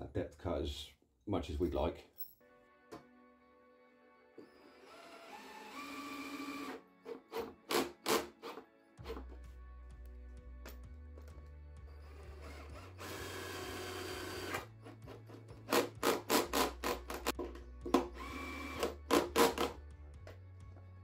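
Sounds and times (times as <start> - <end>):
cordless drill driving a screw: 4.4 - 6.8, 12.1 - 14.7, 18.1 - 19.7.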